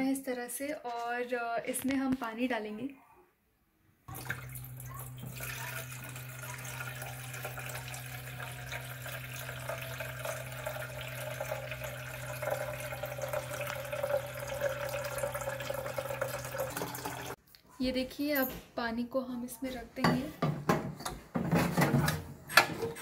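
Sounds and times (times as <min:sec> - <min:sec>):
water filling plastic tank: 0:04.1 - 0:17.4.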